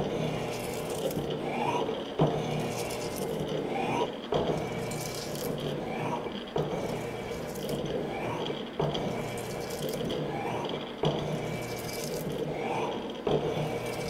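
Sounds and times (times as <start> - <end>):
shaper machine humming: 0.0 - 14.0
sharp machine knock: 4.3 - 5.8.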